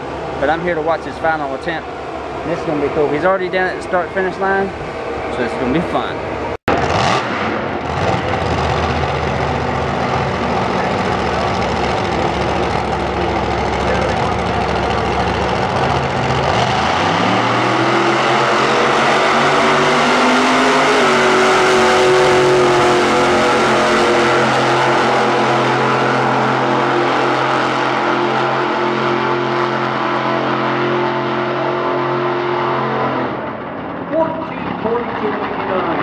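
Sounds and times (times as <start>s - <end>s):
monster truck engine revving: 0.0s - 36.0s.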